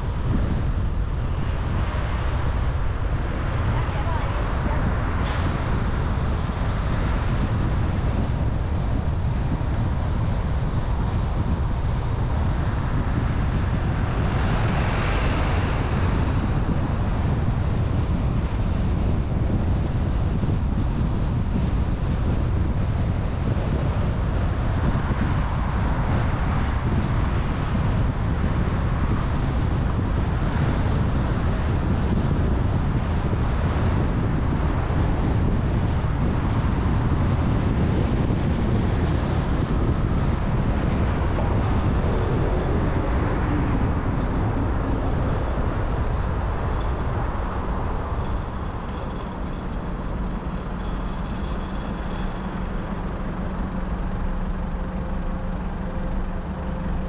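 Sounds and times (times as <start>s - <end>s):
car engine and tyre noise: 0.0s - 57.0s
low hum: 37.5s - 57.0s.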